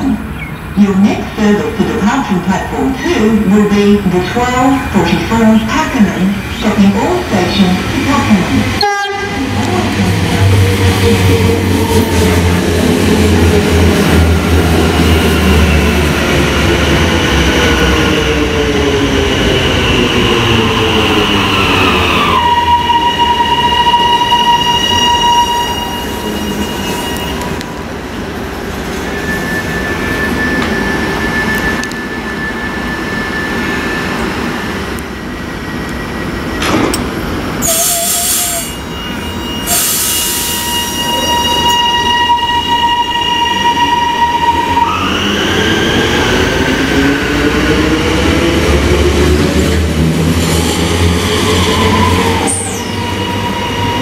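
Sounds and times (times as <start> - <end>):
train traction motor whine: 29.1 - 34.0.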